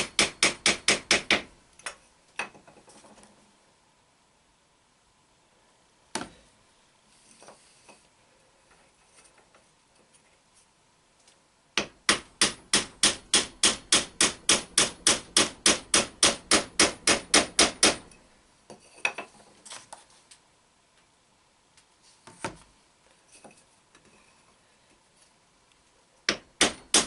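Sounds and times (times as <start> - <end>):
hammer striking wooden block: 0.0 - 1.5, 11.8 - 18.1, 26.3 - 27.0.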